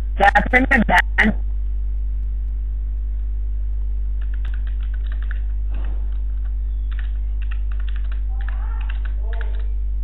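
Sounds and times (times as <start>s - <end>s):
low electrical hum: 0.0s - 10.0s
keyboard key clicks: 4.2s - 5.4s.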